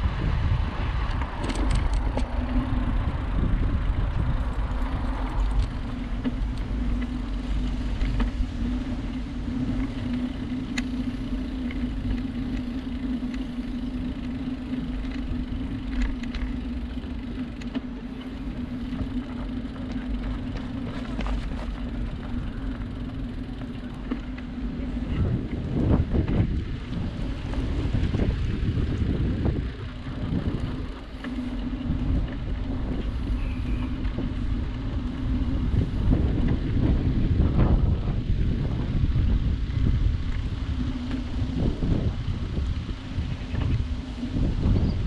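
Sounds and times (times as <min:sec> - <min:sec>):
bicycle tyres rolling: 0:00.0 - 0:45.0
steady low hum: 0:00.0 - 0:45.0
wind on microphone: 0:00.0 - 0:45.0
light clicks and rattles: 0:01.0 - 0:02.7, 0:09.7 - 0:29.1.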